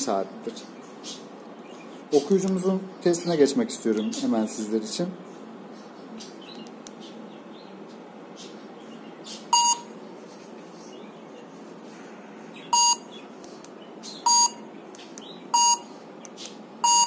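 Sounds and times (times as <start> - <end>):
barcode scanner beeps: 9.5 - 9.9, 12.7 - 13.1, 14.2 - 14.6, 15.5 - 15.9.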